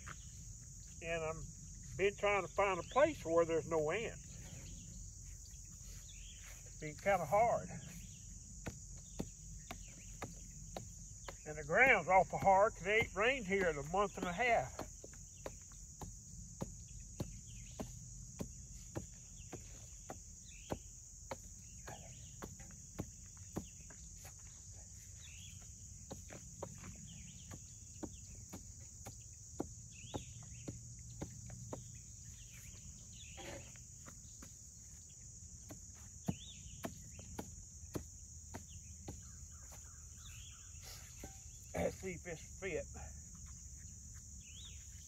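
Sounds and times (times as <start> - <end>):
crickets trilling: 0.0 - 45.0
digging tool chopping hard ground: 8.6 - 23.9, 26.0 - 32.0, 35.5 - 39.3.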